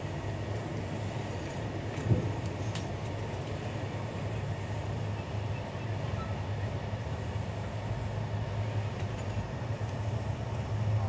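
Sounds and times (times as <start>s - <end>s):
train running on rails: 0.0s - 11.0s.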